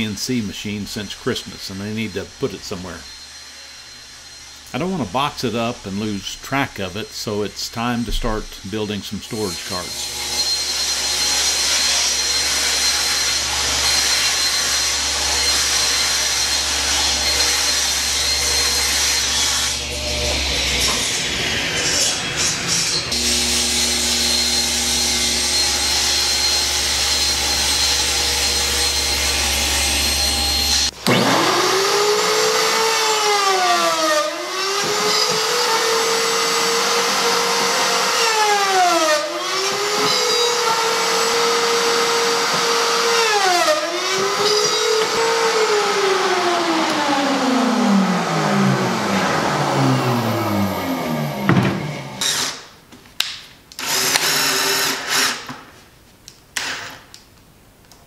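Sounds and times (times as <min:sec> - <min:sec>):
drilling machine motor: 0:23.1 - 0:52.6, 0:53.8 - 0:55.5
table saw ripping panel: 0:23.2 - 0:55.7.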